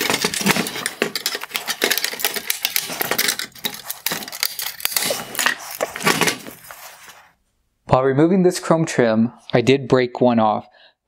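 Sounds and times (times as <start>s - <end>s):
hard plastic clicking and scraping: 0.0s - 6.8s.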